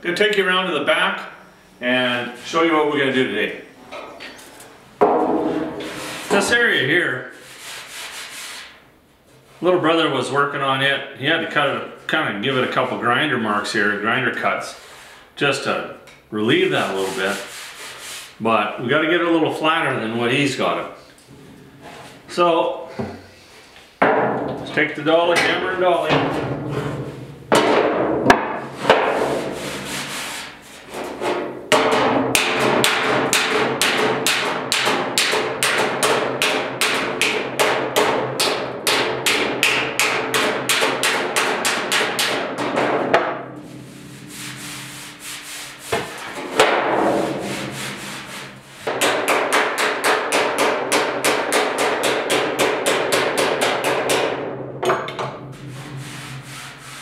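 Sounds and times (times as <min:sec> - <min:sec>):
hammer blows on sheet steel: 0:27.5 - 0:30.6, 0:31.2 - 0:54.5.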